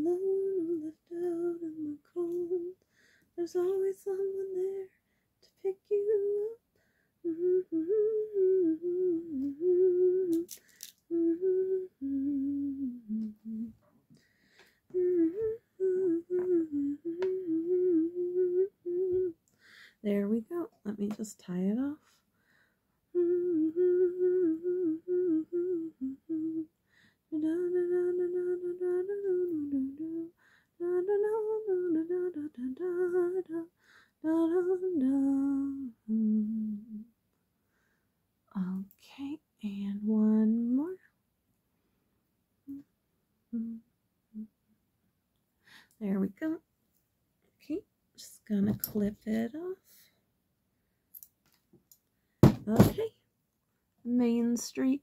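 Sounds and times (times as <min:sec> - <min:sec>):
woman humming: 0:07.2 - 0:13.8, 0:14.9 - 0:19.4, 0:23.1 - 0:26.7, 0:27.3 - 0:33.6, 0:43.5 - 0:44.5.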